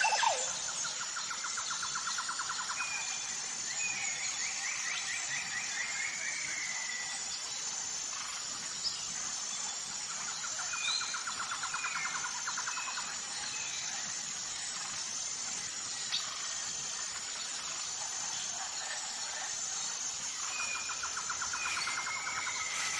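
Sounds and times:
birds chirping and trilling: 20.2 - 22.9.

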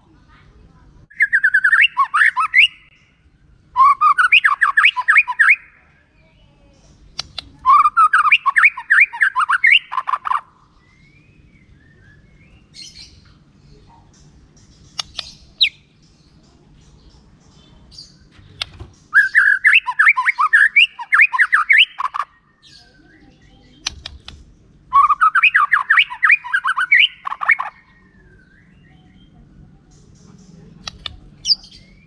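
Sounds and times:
bird chattering phrases: 1.1 - 3.1, 3.8 - 6.0, 6.8 - 10.7, 12.6 - 32.0
bird singing sharp notes: 1.1 - 3.2, 3.8 - 5.8, 18.0 - 32.0.

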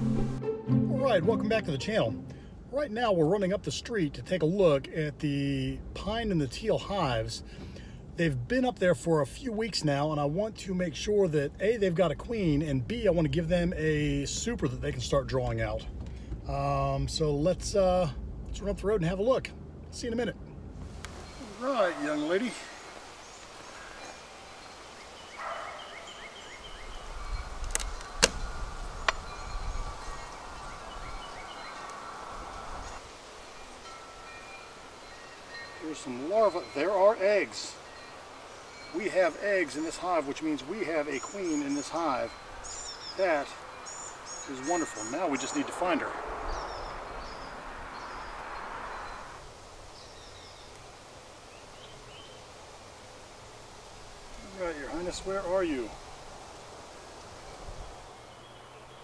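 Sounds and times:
soft rustling hiss: 5.8 - 46.0, 46.6 - 59.0
birds chirping: 20.0 - 59.0
hive tool prying cracks: 27.6 - 28.4
high bird chirps: 40.9 - 49.4.

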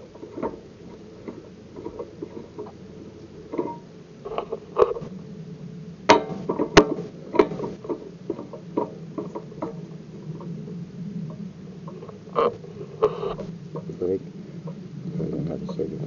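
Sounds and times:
sharp clicks and knocks: 6.1 - 10.5.

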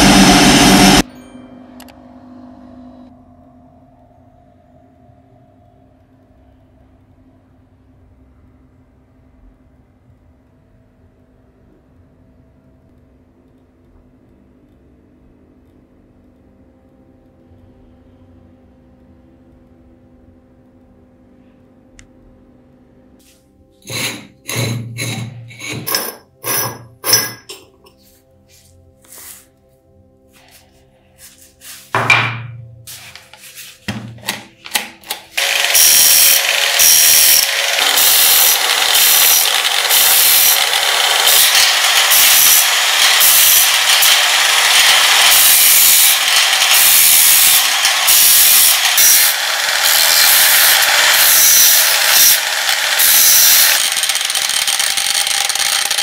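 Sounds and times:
angle grinder grinding metal: 0.0 - 1.1, 23.8 - 28.0, 35.1 - 56.0.

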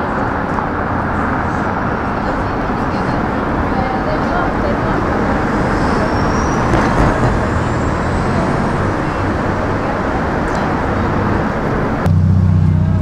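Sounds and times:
city street traffic: 0.0 - 13.0.

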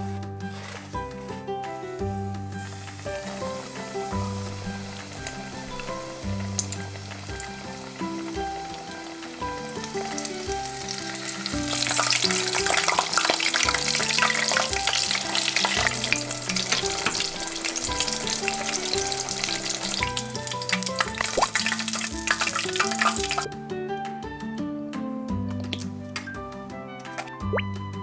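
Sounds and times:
background music: 0.0 - 28.0
cutlets deep-frying in oil: 2.3 - 23.5.

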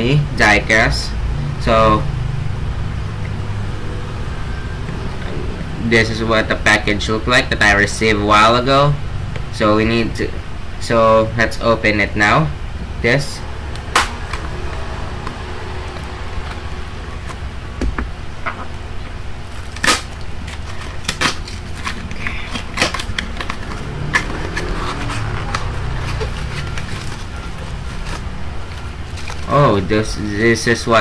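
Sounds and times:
steady low hum: 0.0 - 31.0
cardboard box tape snapping: 13.9 - 14.4, 19.6 - 25.7
cardboard rustling: 19.4 - 30.3.

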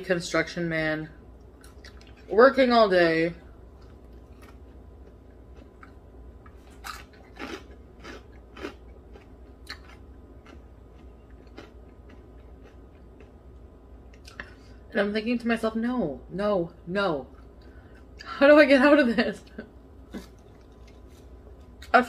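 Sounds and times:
low hum: 0.0 - 22.0
mouth chewing food: 3.8 - 14.6.

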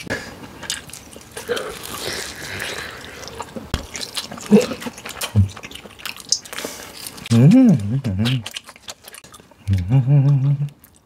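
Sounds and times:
wet mouth eating sounds: 0.0 - 11.0
low vocal sounds: 7.3 - 8.5, 9.7 - 10.8.

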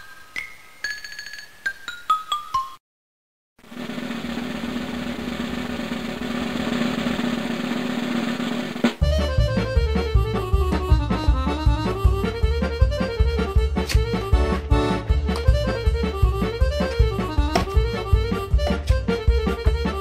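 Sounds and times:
lively tune with steady beat: 9.0 - 20.0.

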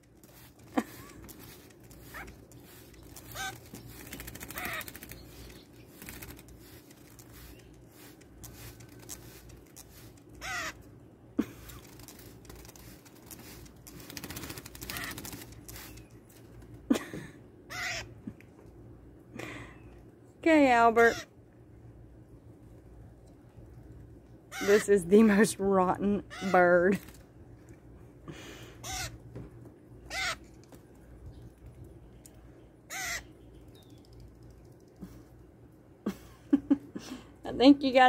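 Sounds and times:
bird giving harsh calls: 2.0 - 5.5, 10.4 - 10.8, 17.7 - 18.1, 28.8 - 29.2, 30.1 - 30.4, 32.9 - 33.3.

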